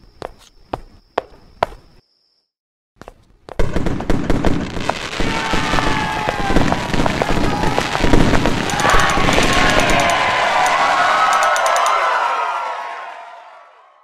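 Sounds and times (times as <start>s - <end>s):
fireworks crackling bursts: 3.6s - 11.6s
whistles falling in pitch: 5.4s - 12.8s
sharp clicks: 8.5s - 12.0s.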